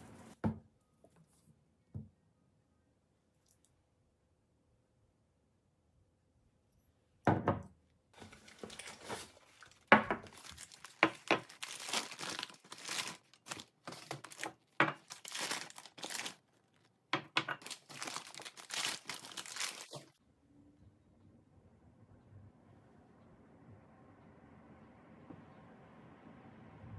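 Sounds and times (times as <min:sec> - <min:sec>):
paper crumpling and crinkling: 0:08.2 - 0:20.2.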